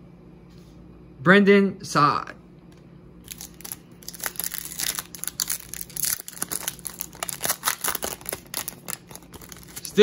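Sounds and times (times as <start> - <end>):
foil wrapper crinkling and tearing: 3.2 - 10.0.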